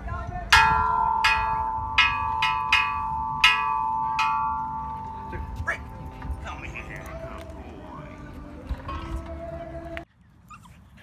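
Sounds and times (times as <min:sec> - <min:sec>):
metal chime tubes struck: 0:00.6 - 0:06.0.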